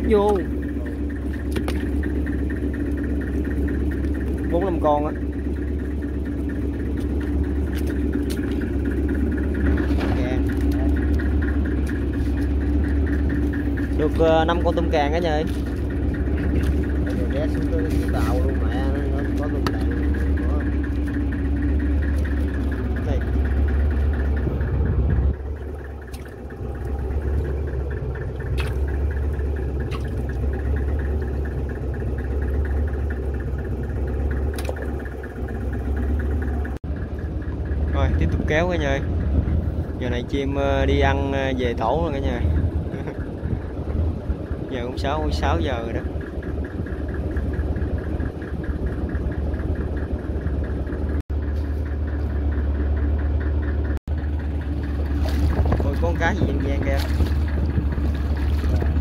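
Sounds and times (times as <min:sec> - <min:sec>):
boat engine humming with ticking: 0:00.0 - 0:59.0.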